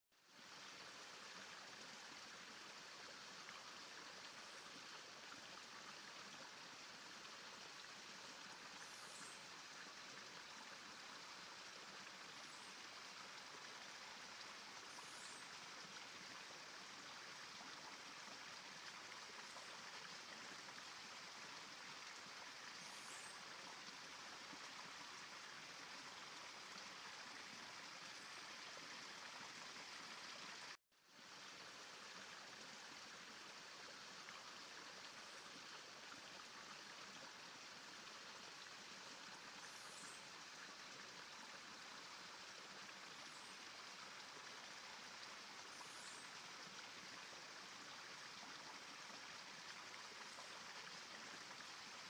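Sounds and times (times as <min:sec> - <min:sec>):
faint steady hiss: 0:00.2 - 0:52.0.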